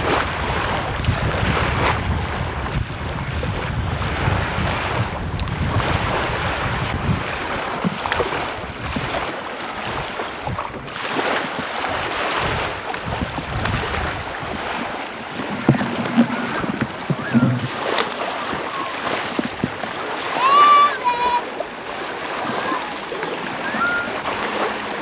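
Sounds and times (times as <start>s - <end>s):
splashing rushing water: 0.0s - 25.0s
wind buffeting microphone: 0.0s - 25.0s
sharp knocks: 15.6s - 17.7s.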